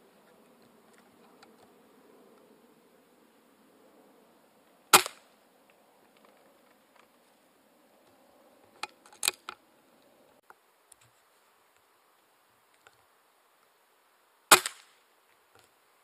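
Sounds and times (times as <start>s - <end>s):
air rifle shot: 4.9s - 5.3s, 14.5s - 15.0s.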